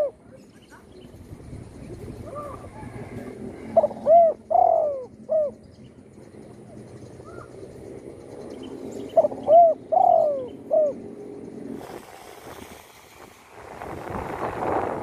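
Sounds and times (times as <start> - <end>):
dove cooing: 0.0 - 0.2, 2.2 - 5.7, 9.1 - 11.2.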